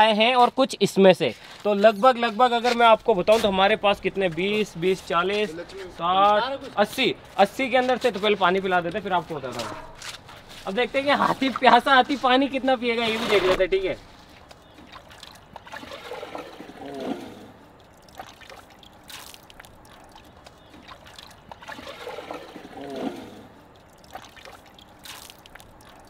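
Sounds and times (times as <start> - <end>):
trickling gurgling water: 14.1 - 26.0
elephant squirting water: 14.6 - 26.0.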